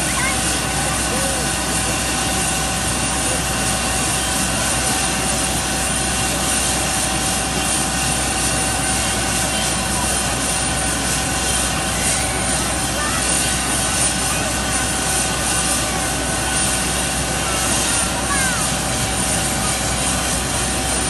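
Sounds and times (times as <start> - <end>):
helicopter rotor rush: 0.0 - 21.0
helicopter turbine whine: 0.0 - 21.0.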